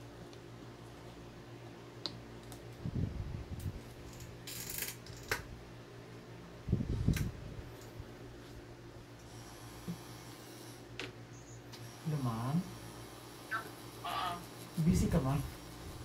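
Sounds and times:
tattoo machine humming: 4.1s - 5.4s, 9.2s - 10.9s, 11.7s - 16.0s.

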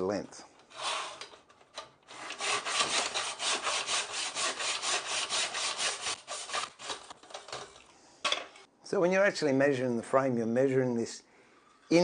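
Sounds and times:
hand saw cutting wood: 2.1s - 7.1s.

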